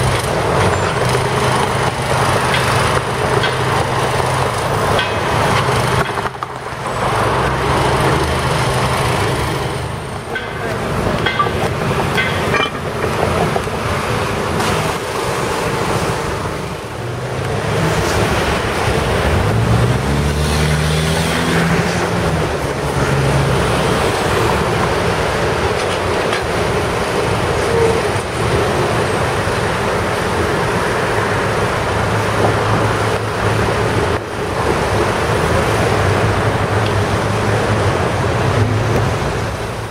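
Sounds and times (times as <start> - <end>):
passing vehicle engine: 0.0 - 25.8
low engine drone: 0.0 - 39.9
street traffic: 0.0 - 39.9.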